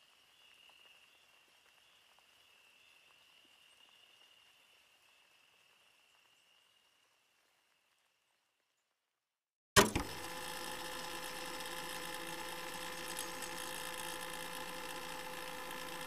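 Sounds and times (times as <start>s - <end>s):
sharp click: 9.8s - 10.2s
small machine humming: 9.8s - 16.0s.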